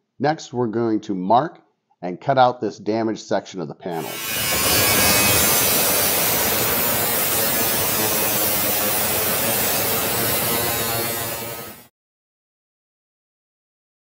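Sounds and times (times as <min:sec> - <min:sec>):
angle grinder cutting steel: 0:03.9 - 0:11.9.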